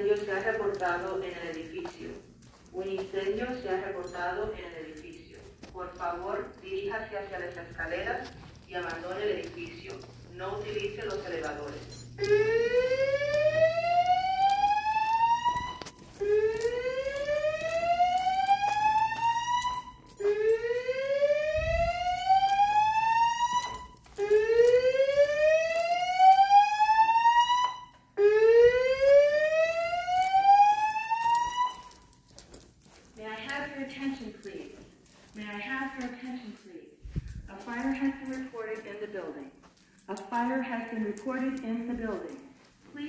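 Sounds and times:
fire alarm whoop tone: 10.8s - 32.3s.

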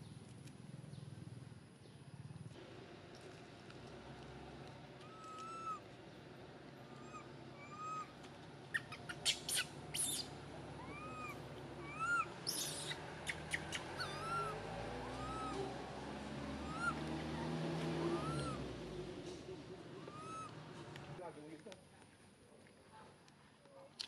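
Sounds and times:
baby monkey coo calls: 5.0s - 5.8s, 6.9s - 15.9s, 16.6s - 18.7s, 20.0s - 20.6s.

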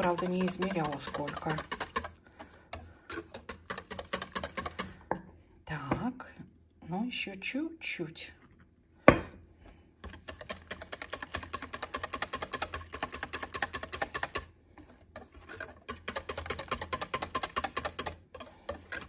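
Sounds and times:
whisk clicking against metal bowl: 0.0s - 5.0s, 10.0s - 14.5s, 15.2s - 19.0s.

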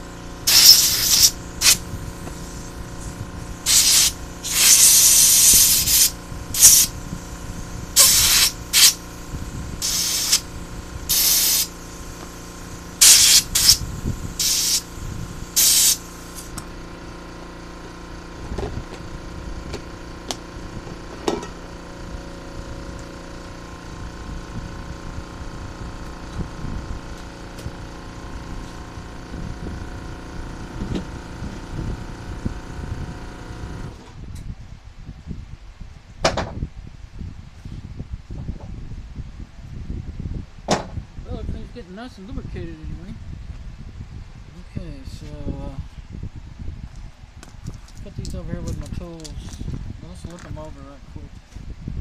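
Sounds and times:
spray nozzle hissing bursts: 0.4s - 7.0s, 7.6s - 16.6s.

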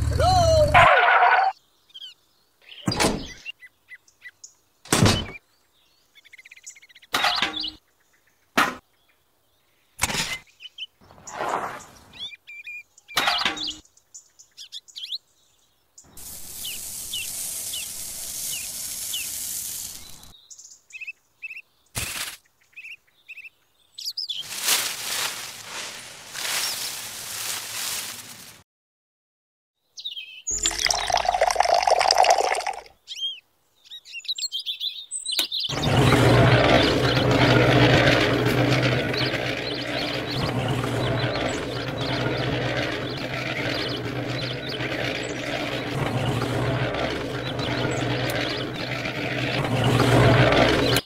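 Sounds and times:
birds chirping: 0.0s - 27.0s, 29.9s - 51.0s
powder pouring into a can: 16.1s - 20.3s, 30.6s - 32.9s
steady hiss: 16.1s - 20.3s.

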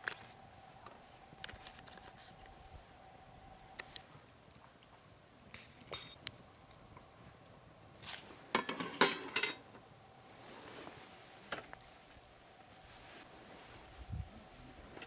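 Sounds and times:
metal utensils clinking on steel bowls: 8.6s - 9.7s.

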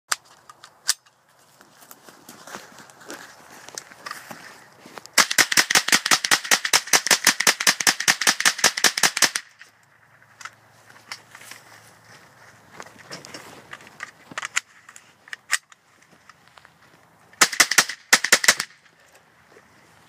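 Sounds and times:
footsteps in brush: 0.2s - 5.2s, 9.6s - 17.4s
rapid rifle shots: 5.2s - 9.5s, 17.4s - 18.8s.

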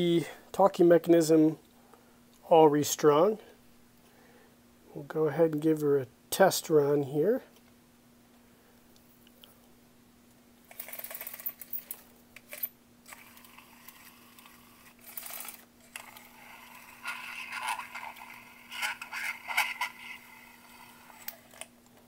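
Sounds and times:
toy talking mechanism rasping: 13.1s - 21.6s.

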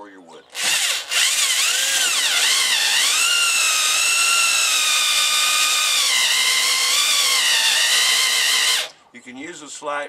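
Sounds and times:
electric drill cutting wood: 0.6s - 9.0s.

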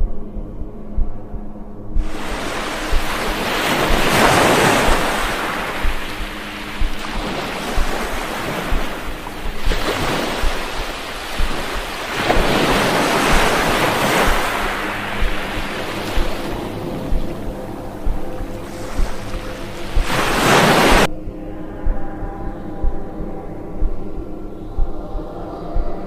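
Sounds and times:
background music with low beat: 0.0s - 26.0s
wind on microphone: 0.0s - 26.0s
stream rushing: 2.0s - 21.1s.

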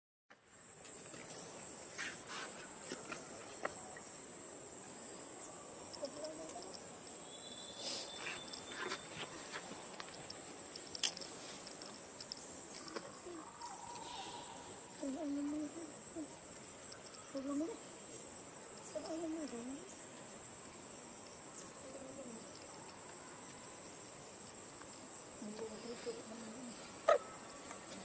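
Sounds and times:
high-pitched insect drone: 5.8s - 20.6s
light rustles: 7.8s - 13.3s.

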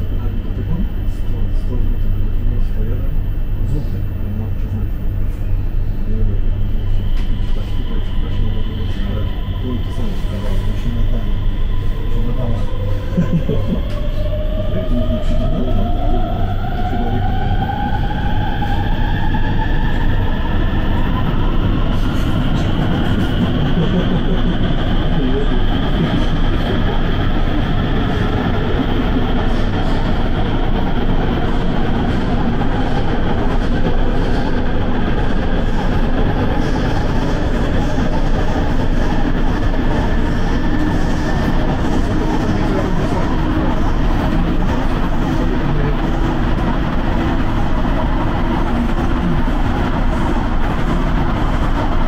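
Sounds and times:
train motors whining: 0.0s - 52.0s
train rumbling on rails: 0.0s - 52.0s.

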